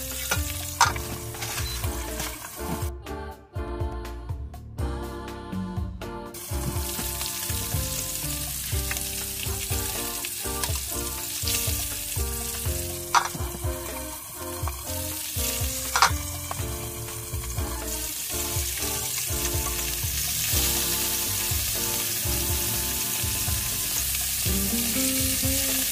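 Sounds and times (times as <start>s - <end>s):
fish sizzling in oil: 0.0s - 2.9s, 6.4s - 25.9s
background music: 0.0s - 25.9s
spatula stirring: 6.6s - 20.5s.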